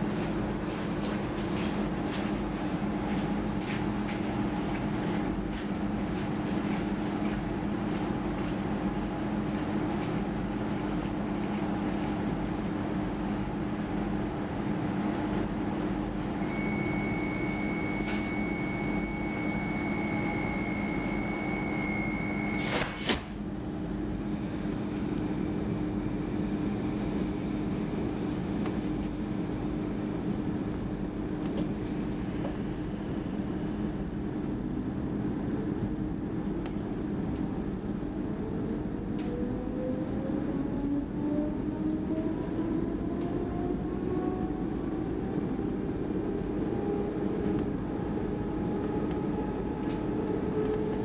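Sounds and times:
high beep: 16.4 - 22.9
electric train running rumble: 23.4 - 51.0.

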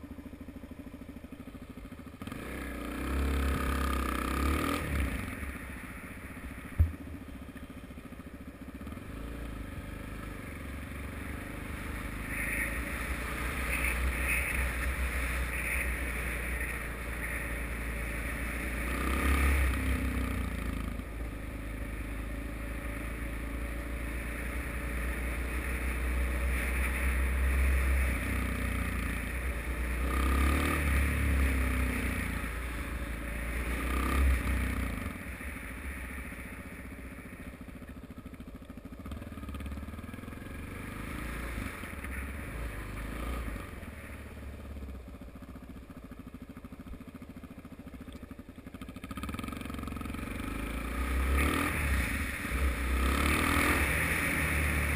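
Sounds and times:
motorcycle engine revving: 0.0 - 54.9.

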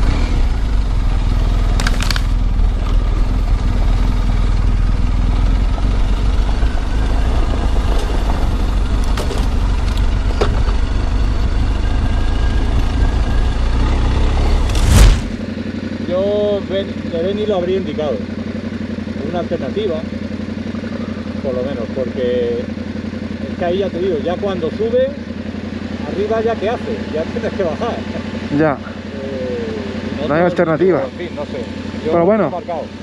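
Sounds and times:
motorcycle engine at low revs: 0.0 - 33.0
loud rush of noise: 14.4 - 15.5.

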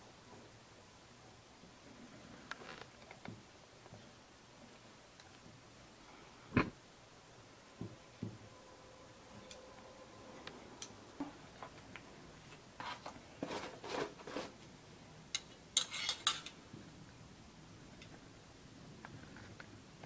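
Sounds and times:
metallic clinking and scraping: 15.4 - 16.6.

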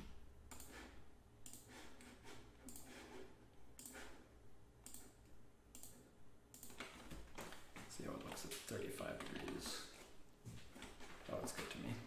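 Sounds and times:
computer mouse clicks: 0.5 - 0.8, 1.4 - 1.8, 2.6 - 3.1, 3.8 - 4.1, 4.8 - 7.2.

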